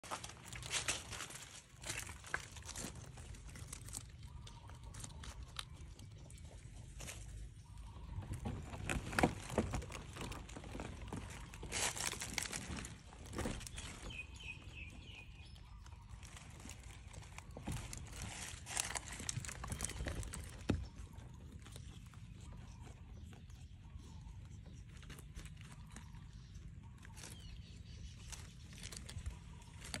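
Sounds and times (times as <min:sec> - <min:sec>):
dry leaves crackling and rustling: 0:00.0 - 0:06.0, 0:06.8 - 0:22.2, 0:24.9 - 0:30.0
rabbit crunching carrot: 0:00.0 - 0:30.0.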